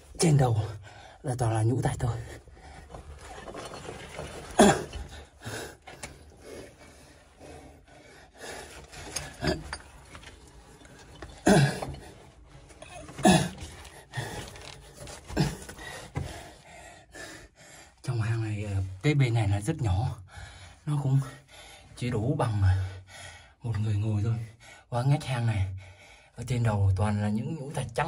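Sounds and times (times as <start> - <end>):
man breathing heavily and gasping: 13.1 - 18.0.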